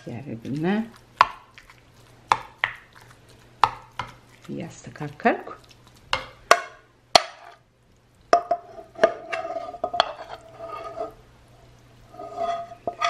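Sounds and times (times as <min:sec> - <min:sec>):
spoon scraping a metal frying pan: 0:08.4 - 0:11.2, 0:12.1 - 0:13.0.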